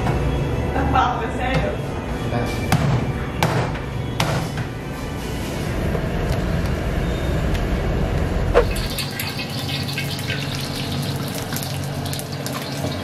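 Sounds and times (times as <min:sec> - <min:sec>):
water boiling in a pot: 0:08.6 - 0:13.0.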